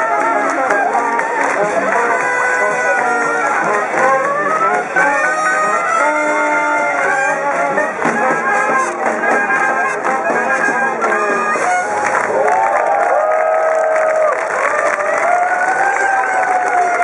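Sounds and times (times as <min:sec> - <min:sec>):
strummed banjo: 0:00.0 - 0:12.2
jazz band brass playing: 0:00.0 - 0:13.2, 0:14.3 - 0:17.0.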